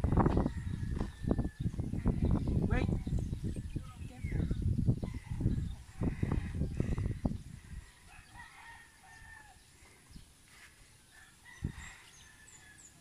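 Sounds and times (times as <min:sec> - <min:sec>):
distant rooster crowing: 0:00.0 - 0:01.9, 0:07.7 - 0:09.7, 0:11.1 - 0:13.0
wind rumble on microphone: 0:00.0 - 0:10.3, 0:11.4 - 0:12.8.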